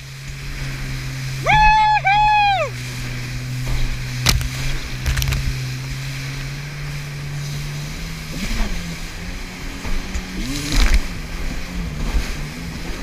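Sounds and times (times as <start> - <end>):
watercraft engine running: 0.0 - 13.0
sharp knocks: 4.2 - 5.5.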